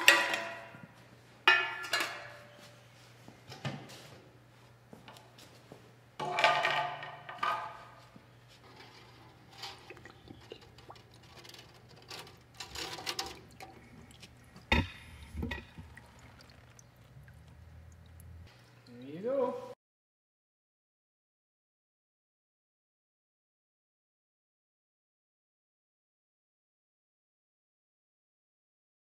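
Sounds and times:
metal basket clanking and rattling: 0:08.7 - 0:13.9.

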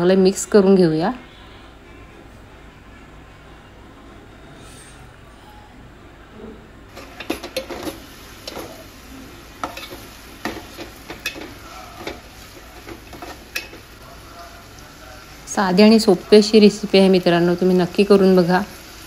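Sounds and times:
metal spoon clinking and scraping pot: 0:06.9 - 0:08.9, 0:09.6 - 0:14.0
light sizzle of oil: 0:06.9 - 0:19.0.

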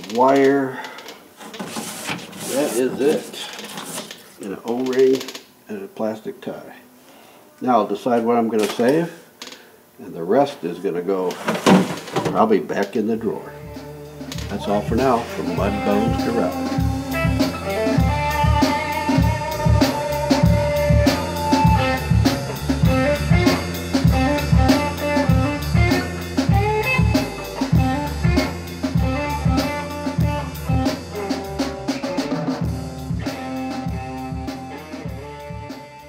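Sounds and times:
band music with drum beat: 0:13.7 - 0:36.0.

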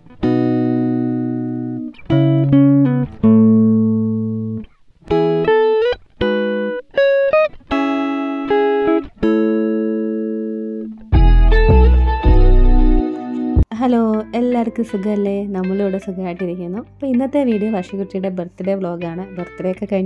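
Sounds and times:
guitar plucked notes and chords: 0:00.0 - 0:20.0.

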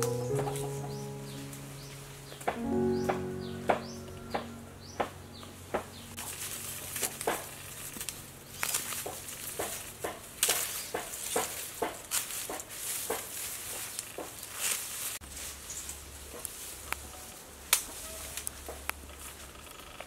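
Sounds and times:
dry leaves rustling: 0:00.0 - 0:19.5
knife cutting lemongrass stalks: 0:06.7 - 0:14.8.

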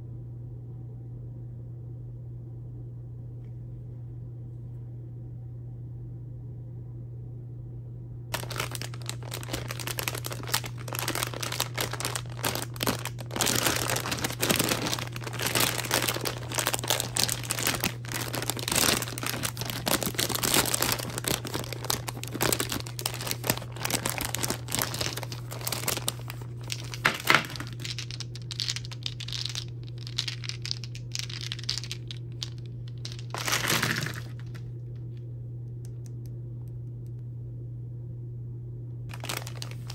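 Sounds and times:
plastic wrappers crinkling and tearing: 0:08.3 - 0:34.7, 0:39.1 - 0:39.9.

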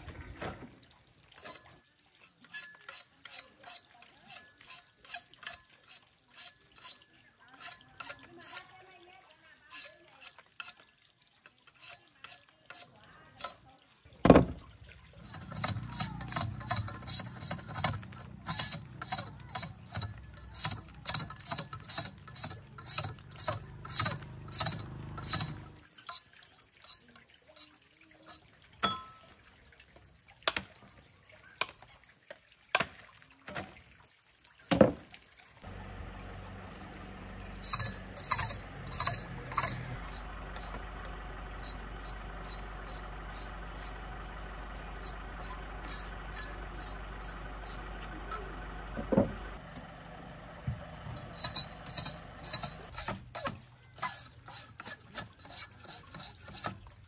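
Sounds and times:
knife scraping sugarcane: 0:02.4 - 0:08.7, 0:09.7 - 0:10.8, 0:11.7 - 0:13.6, 0:15.2 - 0:27.7, 0:37.2 - 0:40.8, 0:41.6 - 0:44.0, 0:45.0 - 0:47.8, 0:51.2 - 0:56.9
low engine hum: 0:14.3 - 0:25.8, 0:35.6 - 0:53.0.

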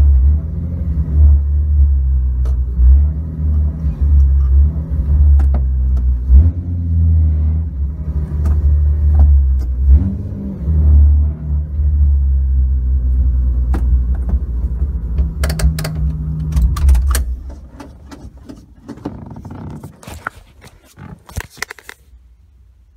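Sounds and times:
car engine idling: 0:11.1 - 0:21.1.

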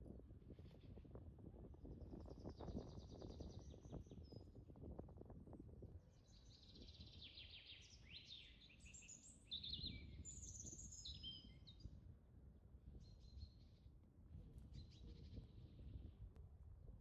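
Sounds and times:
wind rumble on microphone: 0:00.0 - 0:17.0
small birds chirping: 0:06.2 - 0:11.9.

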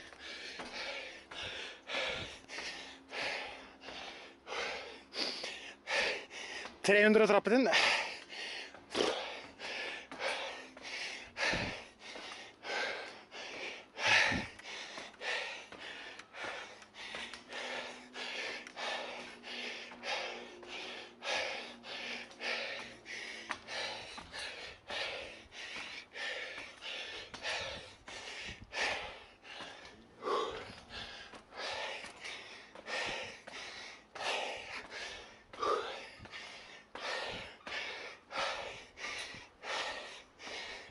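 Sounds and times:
man breathing hard: 0:00.0 - 0:06.8, 0:07.6 - 0:40.9.

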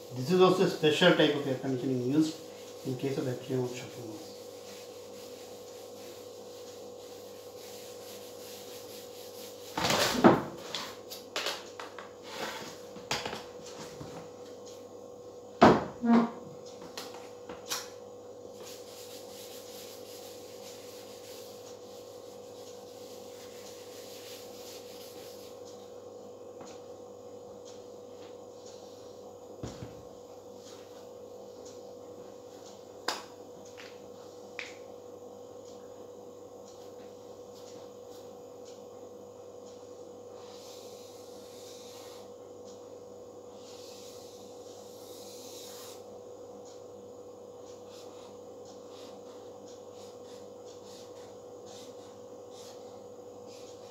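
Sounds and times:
steady hum: 0:00.0 - 0:53.9
duster rubbing whiteboard: 0:00.1 - 0:11.0, 0:18.6 - 0:25.6, 0:40.4 - 0:42.3, 0:43.6 - 0:46.0, 0:48.9 - 0:53.9.

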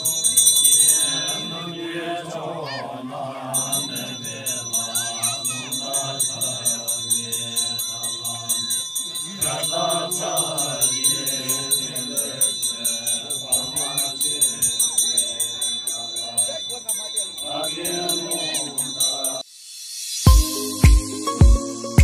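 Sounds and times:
fast jingling bell rhythm: 0:00.0 - 0:02.0, 0:03.6 - 0:22.0
chanting voices: 0:00.0 - 0:19.4.

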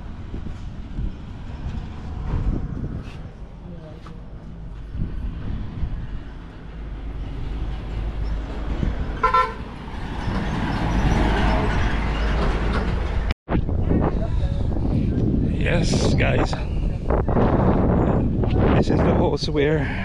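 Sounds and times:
truck driving past: 0:04.2 - 0:13.4
vehicle horn toot: 0:09.2 - 0:09.7.

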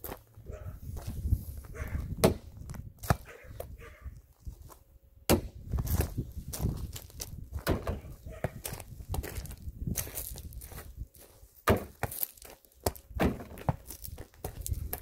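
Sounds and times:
sharp knocks and clunks: 0:07.6 - 0:08.1, 0:11.6 - 0:12.0, 0:13.2 - 0:13.8.

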